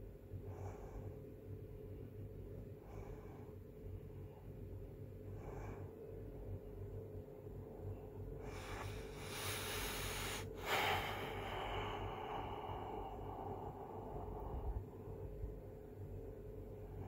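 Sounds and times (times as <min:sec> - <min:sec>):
low steady hum: 0:00.0 - 0:17.0
person breathing loudly: 0:08.4 - 0:15.0.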